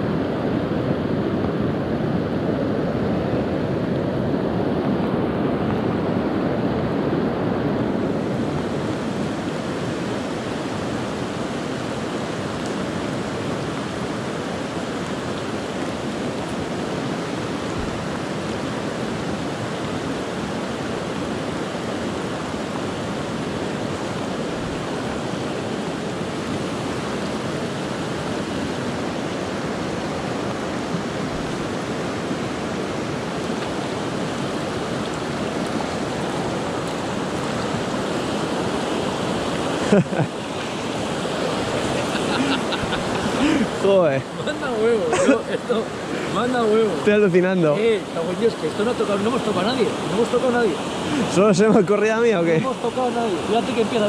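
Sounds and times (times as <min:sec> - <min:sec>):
river rushing over rocks: 0:00.0 - 0:54.0.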